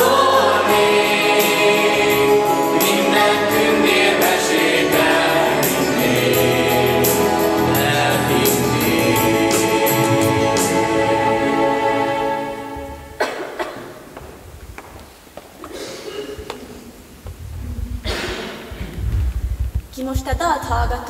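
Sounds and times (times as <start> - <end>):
choir singing held chords: 0.0 - 13.4.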